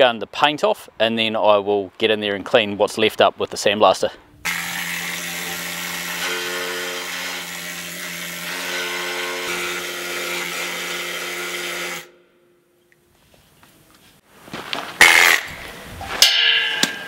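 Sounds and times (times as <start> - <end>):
needle gun hammering steel: 16.2 - 17.0.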